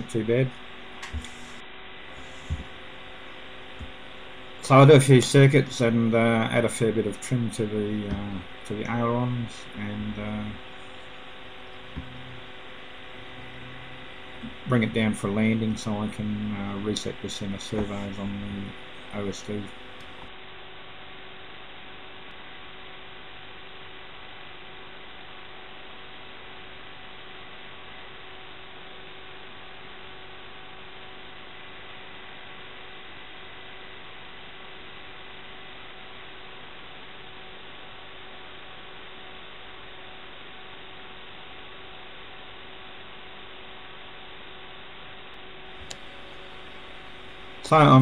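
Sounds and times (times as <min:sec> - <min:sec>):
faint steady tones: 0:00.0 - 0:20.3, 0:45.3 - 0:48.0
electronic hiss and hum: 0:00.0 - 0:48.0.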